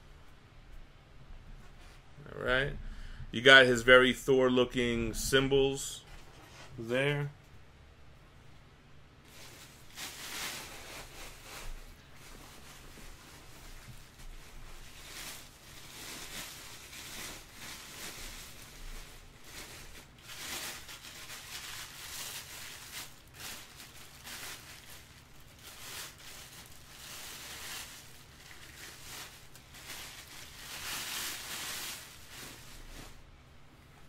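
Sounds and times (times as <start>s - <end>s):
plastic bag crinkling: 9.2s - 33.3s.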